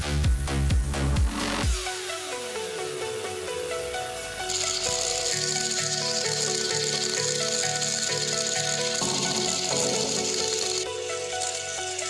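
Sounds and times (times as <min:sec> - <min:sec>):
deep kick drum beat: 0:00.0 - 0:01.9.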